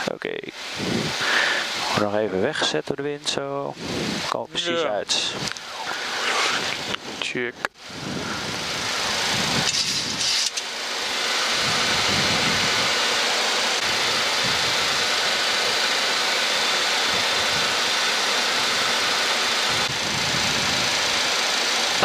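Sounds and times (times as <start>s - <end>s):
airliner engine noise: 0.0s - 22.0s
rushing airflow: 0.6s - 2.6s, 3.7s - 4.3s, 5.3s - 7.2s, 7.8s - 10.5s.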